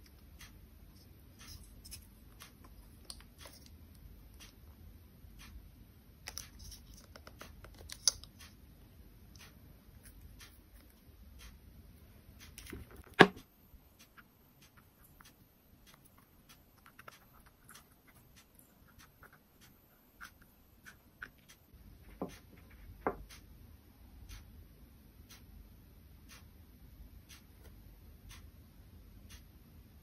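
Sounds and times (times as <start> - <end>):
light ticks and clicks: 0.0 - 11.7, 25.2 - 26.6, 27.2 - 29.6.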